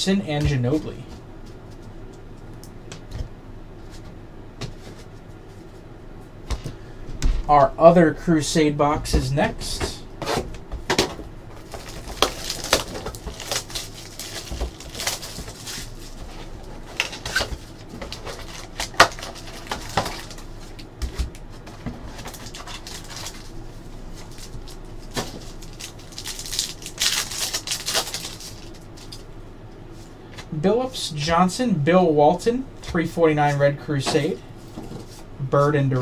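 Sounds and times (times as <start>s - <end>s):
cellophane wrapper crinkling: 11.6s - 20.9s, 22.0s - 29.2s.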